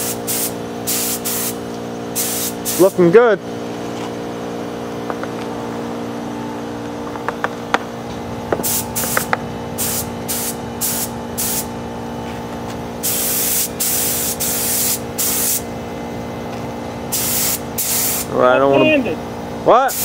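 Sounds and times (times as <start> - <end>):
spray gun hissing bursts: 0.0 - 3.0, 8.6 - 11.8, 13.0 - 15.7, 17.1 - 18.4
steady hum: 0.0 - 20.0.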